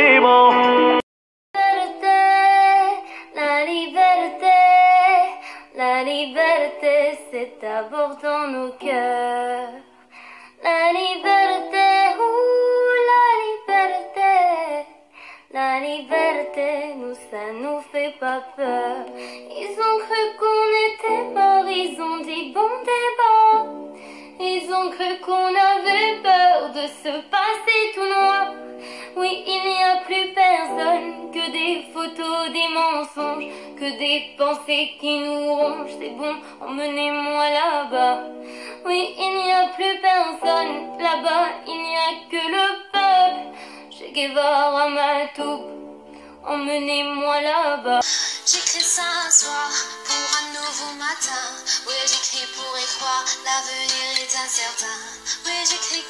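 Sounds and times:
high voice singing: 48.0 - 56.0.

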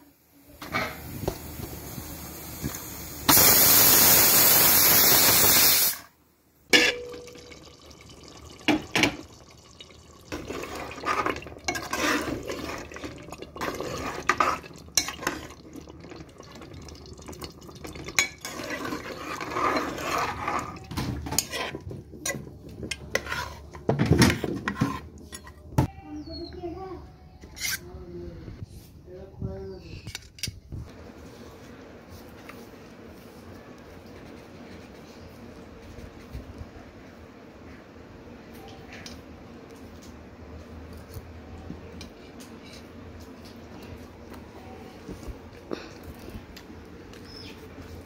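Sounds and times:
pressure cooker steam hissing: 0.7 - 6.1
metal ladle scraping a pot: 10.3 - 15.6, 18.1 - 25.6, 27.4 - 27.9.

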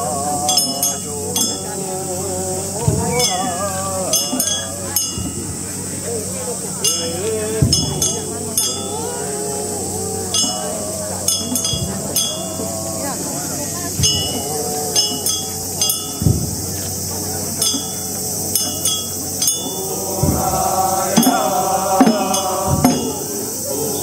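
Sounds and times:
voices chanting: 0.0 - 24.0
sharp metallic clinks: 10.3 - 12.9, 13.8 - 23.9.

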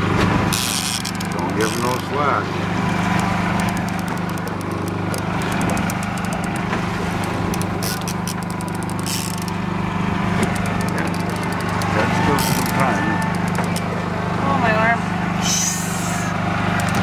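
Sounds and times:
boat motor humming: 0.0 - 17.0
rapid light ticking: 3.1 - 9.6, 10.4 - 12.0.

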